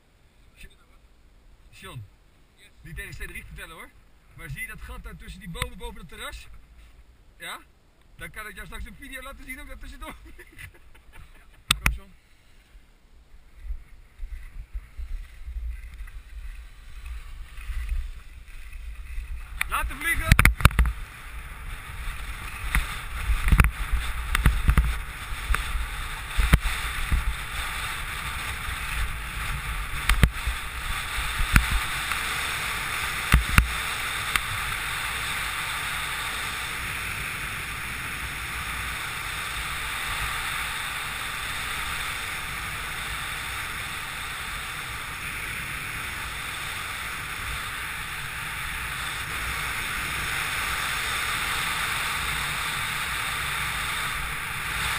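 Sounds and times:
low wind thumps and buffets: 12.8s - 54.9s
wind rushing over microphone: 13.3s - 54.9s.

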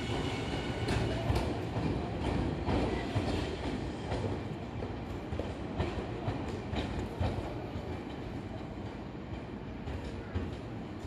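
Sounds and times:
train wheels clacking over rail joints: 0.0s - 8.3s
train rumble: 0.0s - 11.0s.

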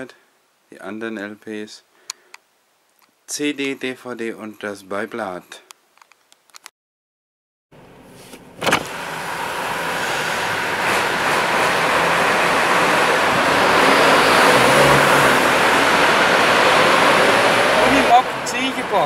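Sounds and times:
road noise inside moving car: 7.8s - 19.0s
truck running alongside: 8.6s - 19.0s.

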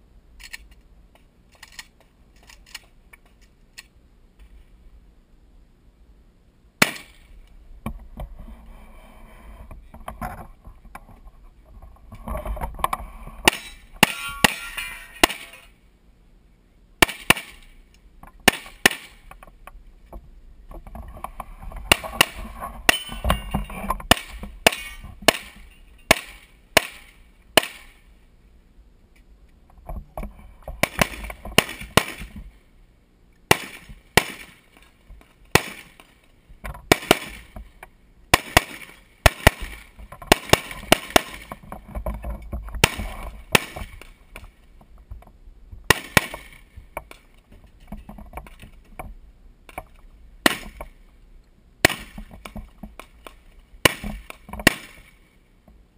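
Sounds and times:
rapid gunshots: 30.8s - 32.3s, 35.6s - 35.9s, 36.9s - 37.5s, 38.4s - 41.5s.

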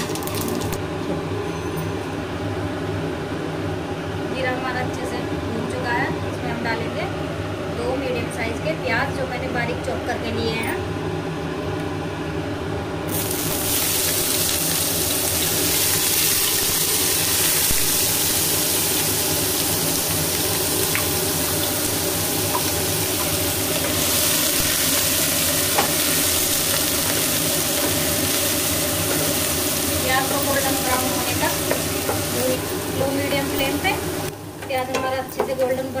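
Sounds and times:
onions sizzling in oil: 0.0s - 0.8s, 13.1s - 34.6s.

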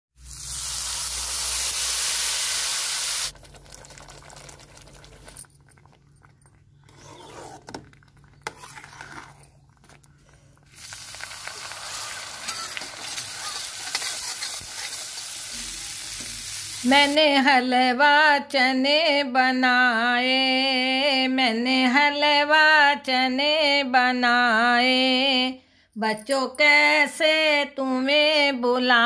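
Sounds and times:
spices sizzling in hot oil: 0.2s - 4.6s, 10.7s - 17.2s
water hissing and bubbling in pan: 0.2s - 5.2s, 10.7s - 17.2s.

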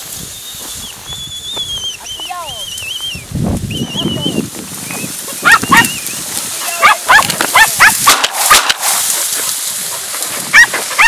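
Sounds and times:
dogs yelping: 5.2s - 11.0s.

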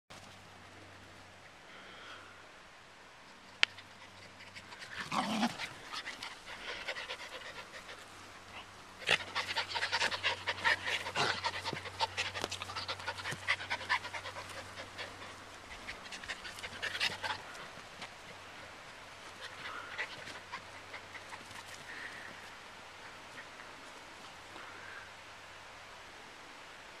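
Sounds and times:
puppy panting: 3.9s - 17.8s.

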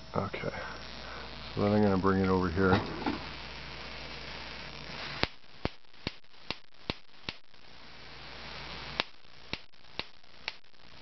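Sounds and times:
high-voltage hissing: 0.0s - 11.0s
electric sparks snapping: 2.6s - 11.0s.

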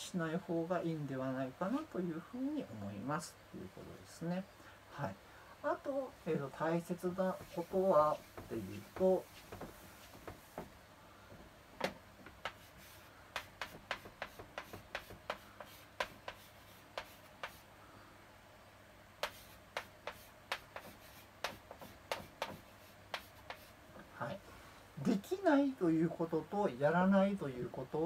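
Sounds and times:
chalk tapping and scratching: 7.1s - 10.7s, 12.2s - 17.7s, 19.2s - 23.8s.

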